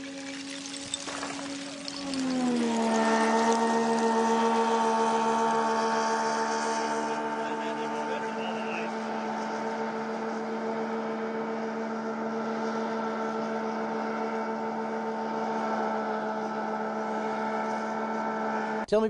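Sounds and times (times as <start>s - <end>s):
hovercraft engine drone: 0.0s - 19.0s.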